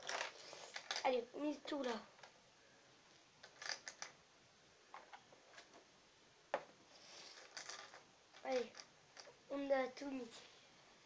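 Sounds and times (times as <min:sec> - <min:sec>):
game pieces clicking on plastic board: 0:00.0 - 0:01.1, 0:03.4 - 0:04.2, 0:07.3 - 0:09.3.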